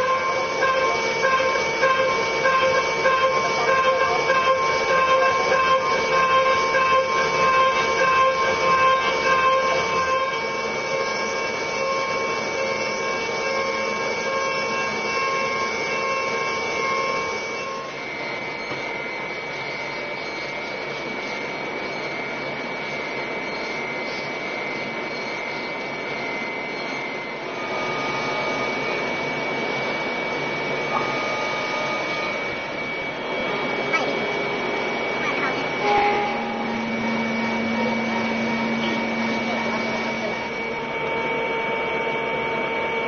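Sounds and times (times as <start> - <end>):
milling machine whine: 0.0 - 43.0.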